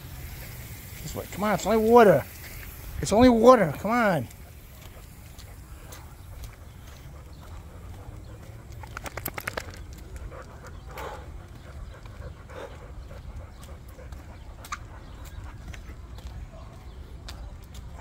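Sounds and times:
dog panting: 4.3 - 18.0
rattle of sharp clicks: 8.8 - 9.9.

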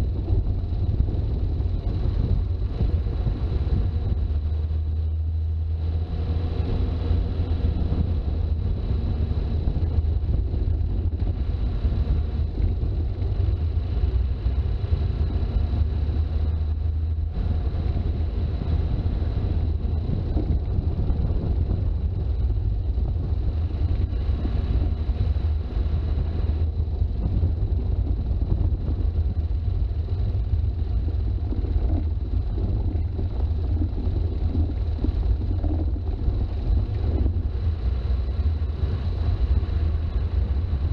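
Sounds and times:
diesel engine rumble: 0.0 - 40.9
road noise: 0.0 - 40.9
wind buffeting: 0.0 - 40.9.

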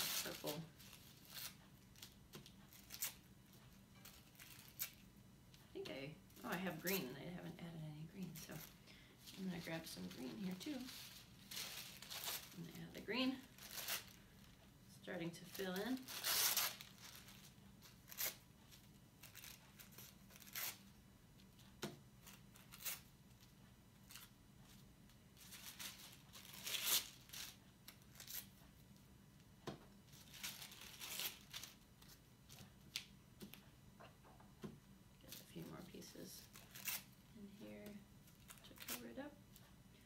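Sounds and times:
tissue paper tearing and rustling: 0.0 - 3.2, 8.5 - 14.3, 15.5 - 18.4, 19.2 - 20.8, 25.4 - 28.5, 30.1 - 32.2, 35.3 - 37.2.

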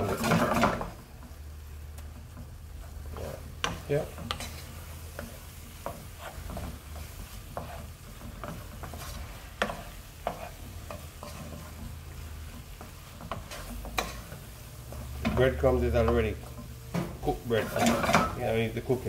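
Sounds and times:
low sizzle from pan: 0.0 - 19.0
wooden spoon scraping a pan: 0.0 - 19.0.

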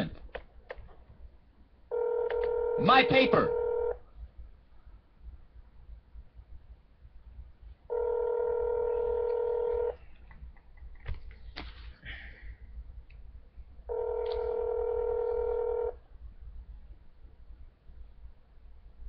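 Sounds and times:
telephone ringback tone: 1.9 - 4.0, 7.9 - 10.0, 13.9 - 16.0.

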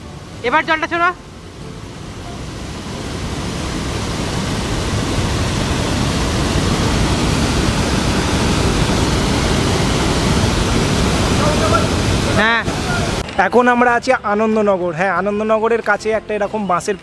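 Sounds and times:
water rushing over weir: 0.0 - 13.3.

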